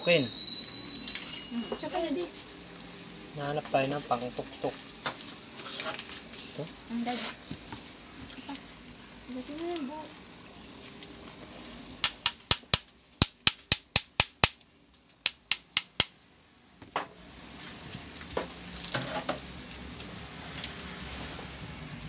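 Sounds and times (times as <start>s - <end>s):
sharp knocks on fan motor: 12.0s - 14.6s, 15.2s - 16.2s.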